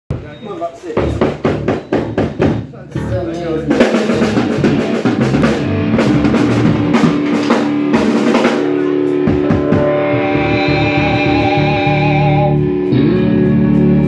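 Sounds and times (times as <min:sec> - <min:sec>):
drum kit: 0:00.1 - 0:14.0
bass guitar: 0:01.0 - 0:14.0
electric guitar: 0:03.0 - 0:14.0.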